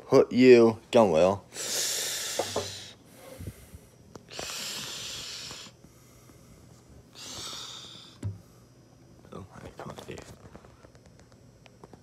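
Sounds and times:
person breathing noisily: 1.5s - 8.8s.

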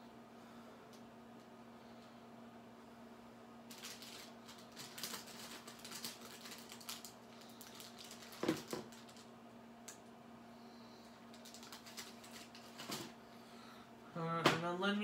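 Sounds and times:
steady low hum: 0.0s - 15.0s
small objects tapping and clattering: 8.0s - 9.3s.

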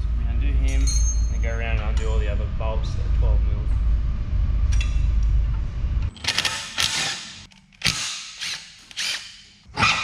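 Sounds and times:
low rumble: 0.0s - 6.1s
pneumatic impact wrench rattling: 6.2s - 9.6s.

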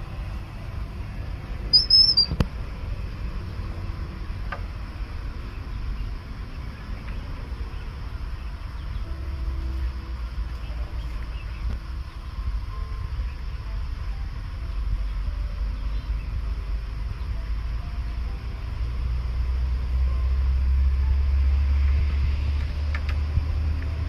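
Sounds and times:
steady low rumble: 0.0s - 24.0s
wavering high-pitched squeak: 1.7s - 2.4s.

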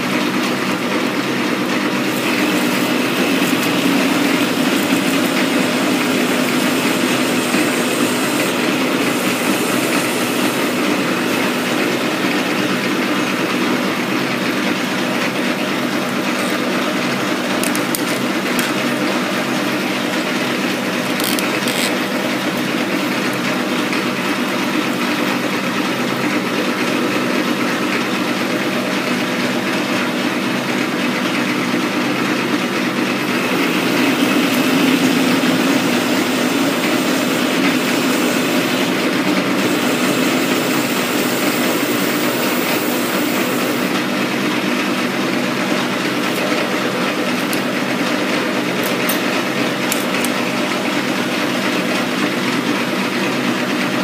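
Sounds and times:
metal lathe running: 0.0s - 54.0s.

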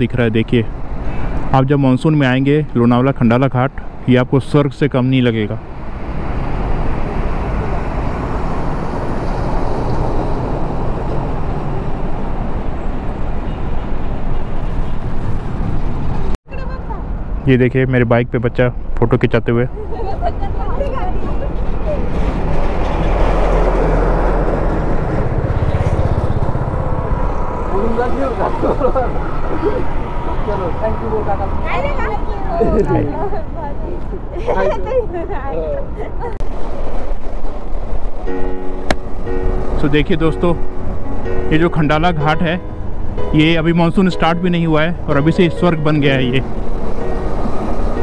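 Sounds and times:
highway traffic rumble: 0.0s - 48.0s
vehicle engine passing by: 5.7s - 13.1s, 21.6s - 33.4s, 46.0s - 48.0s.

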